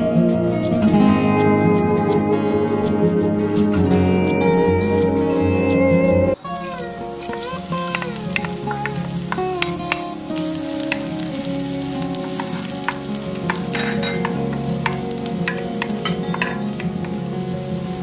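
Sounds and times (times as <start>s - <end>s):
oil sizzling in a pan: 6.4s - 18.0s
wooden spoon tapping and scraping pan: 7.3s - 10.1s, 12.2s - 17.2s.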